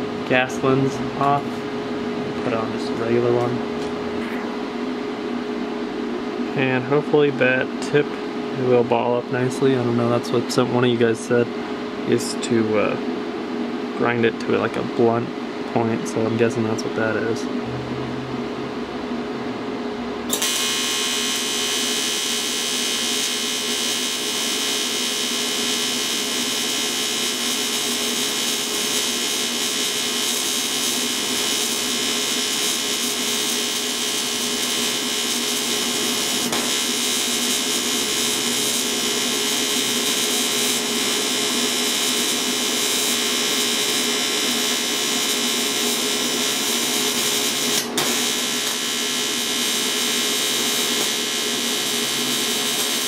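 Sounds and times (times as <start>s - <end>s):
welding arc buzzing: 20.3s - 53.0s.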